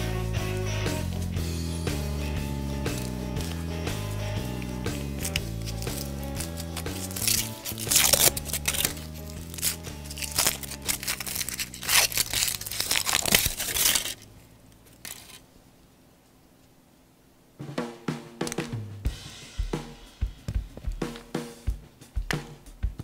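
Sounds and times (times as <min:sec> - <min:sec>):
background music: 0:00.0 - 0:14.2
foil wrapper crinkling and tearing: 0:02.9 - 0:04.0, 0:04.6 - 0:15.4.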